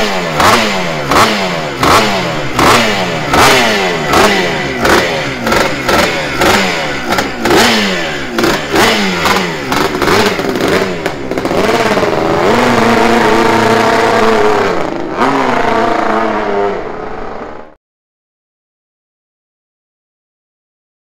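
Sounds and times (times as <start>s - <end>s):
two-stroke engine revving: 0.0s - 17.8s.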